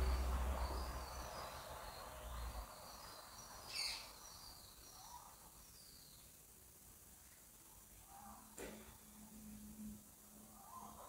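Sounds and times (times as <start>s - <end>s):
low rumble: 0.0s - 2.6s.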